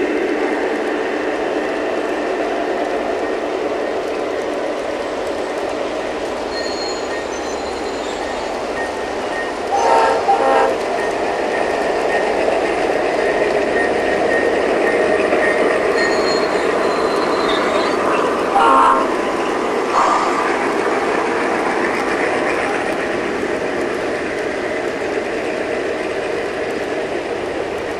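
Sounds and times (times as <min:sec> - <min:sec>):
model locomotive horn blasts: 0:09.7 - 0:10.8, 0:18.5 - 0:19.2.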